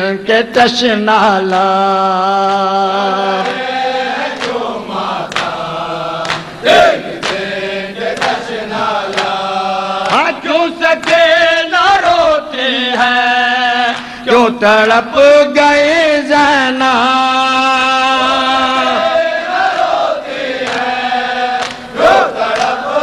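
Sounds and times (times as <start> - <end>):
men chanting together: 0.6 - 23.0
rhythmic chest slapping: 1.4 - 12.4, 19.3 - 23.0.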